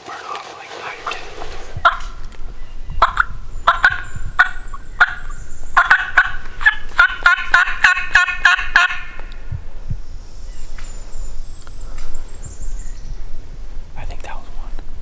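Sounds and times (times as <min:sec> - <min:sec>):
turkey call yelps: 0:01.0 - 0:02.2, 0:03.0 - 0:09.3.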